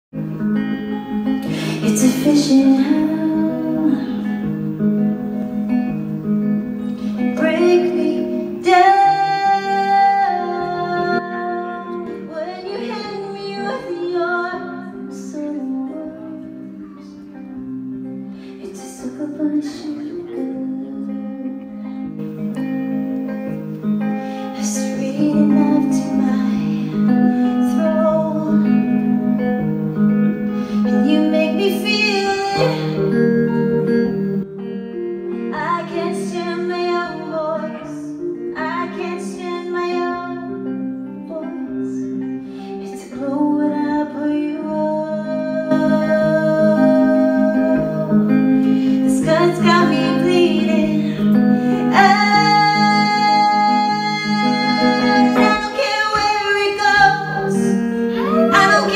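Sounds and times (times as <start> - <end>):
clean electric guitar: 0.1 - 58.9
woman singing: 0.7 - 5.3, 7.0 - 17.7, 18.4 - 29.6, 30.7 - 34.3, 35.3 - 58.9.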